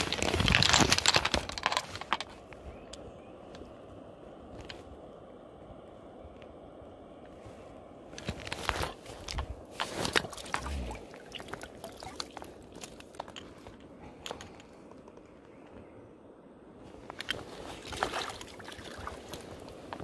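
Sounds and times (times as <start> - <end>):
stones crunching underfoot: 0.0 - 2.5, 8.2 - 13.9
water sloshing and splashing: 8.4 - 13.8, 17.1 - 20.0.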